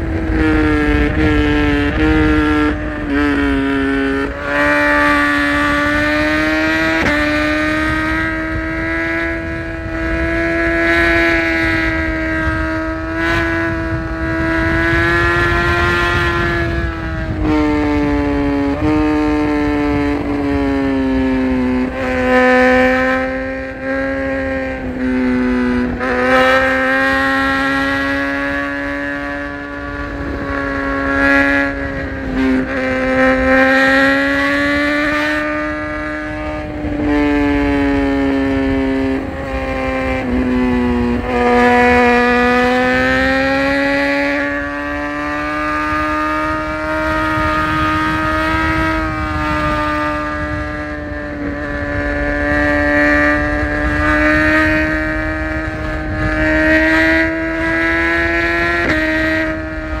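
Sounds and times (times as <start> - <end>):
motorcycle engine at high revs: 0.0 - 60.0
wind and road rush: 0.0 - 60.0.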